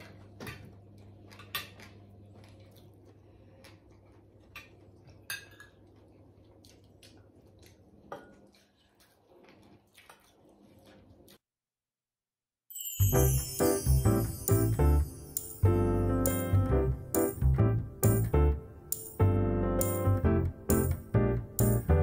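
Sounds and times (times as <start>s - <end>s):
cutlery clinking on plates: 4.6s - 5.8s.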